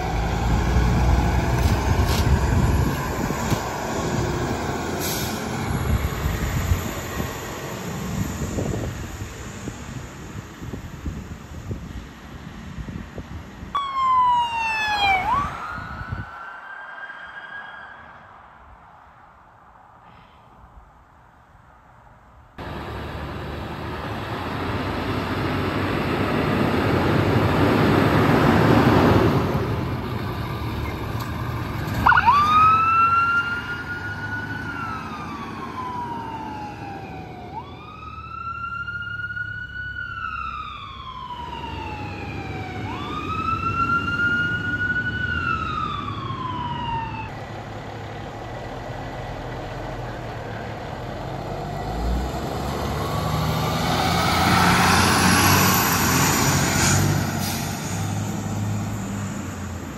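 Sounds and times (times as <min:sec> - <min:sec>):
emergency siren wailing: 0:13.7 - 0:18.7, 0:31.8 - 0:47.4, 0:53.0 - 0:57.3
vehicle rushing past: 0:49.1 - 0:59.9.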